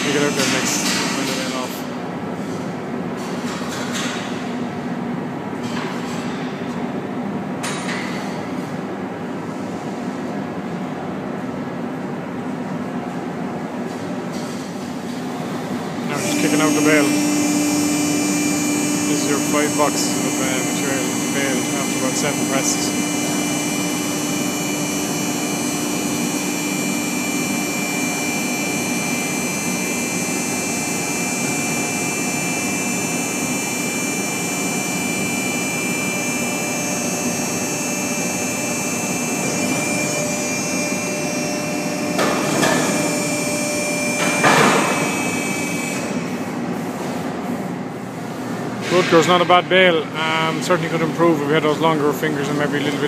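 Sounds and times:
hydraulic power pack whine: 0:00.0 - 0:01.9, 0:15.9 - 0:46.3.

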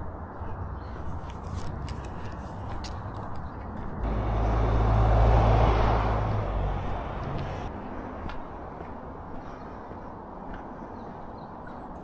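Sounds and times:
car passing by: 0:04.0 - 0:07.9.

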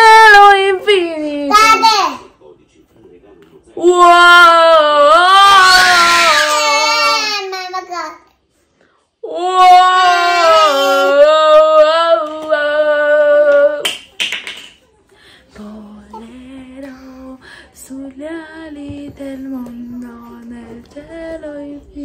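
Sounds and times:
woman singing unaccompanied: 0:09.2 - 0:13.8, 0:15.5 - 0:22.0.

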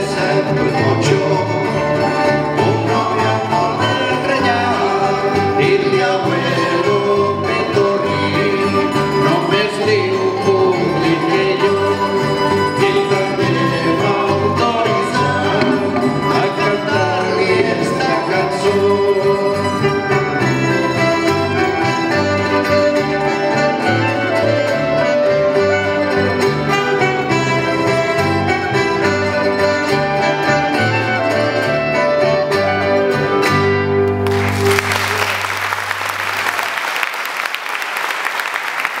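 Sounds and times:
small band playing instrumental: 0:00.0 - 0:36.7
applause: 0:34.1 - 0:39.0.

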